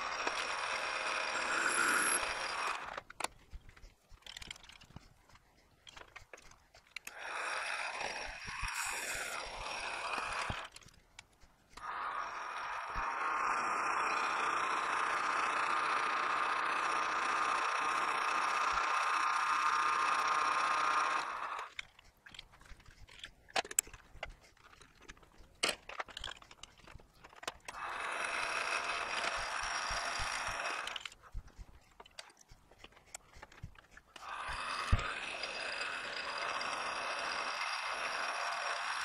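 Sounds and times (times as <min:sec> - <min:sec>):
metal lathe whining: 0:00.0 - 0:03.0, 0:07.1 - 0:10.8, 0:27.7 - 0:31.1, 0:34.2 - 0:39.0.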